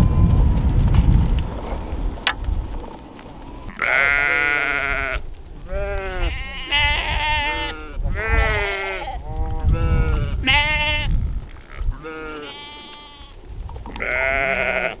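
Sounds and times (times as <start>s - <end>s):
sheep and lambs bleating: 3.6s - 15.0s.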